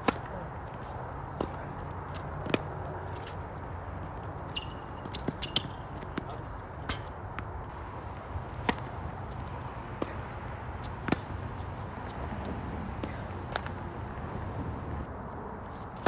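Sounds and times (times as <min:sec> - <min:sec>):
shoes squeaking on court: 0:00.0 - 0:07.5, 0:08.5 - 0:13.8
ball bouncing on hard court: 0:04.5 - 0:07.5
tennis ball struck with racket: 0:08.6 - 0:10.2, 0:10.8 - 0:11.3.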